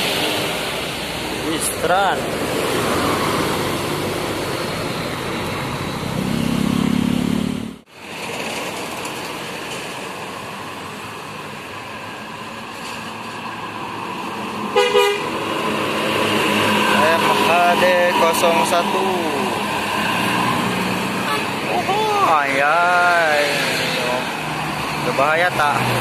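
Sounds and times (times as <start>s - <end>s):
bus engine and road noise: 0.0s - 26.0s
multi-tone bus horn playing: 14.8s - 15.4s.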